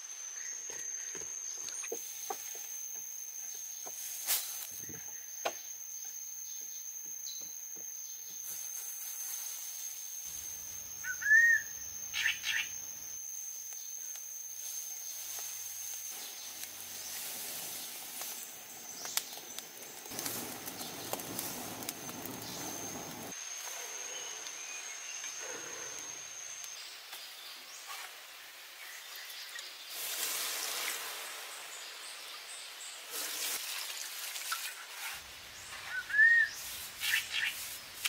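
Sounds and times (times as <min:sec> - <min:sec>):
high-pitched insect whine: 0:00.0 - 0:28.1
bird chirps: 0:11.0 - 0:12.9
fire crackling and rustling: 0:13.6 - 0:23.4, 0:29.9 - 0:31.7.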